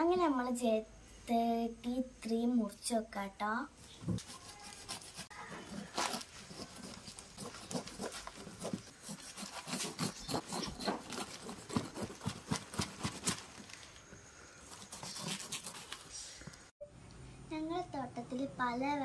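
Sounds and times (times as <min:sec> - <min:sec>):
knife cutting through spiky rind: 0:04.2 - 0:13.8, 0:14.7 - 0:16.2.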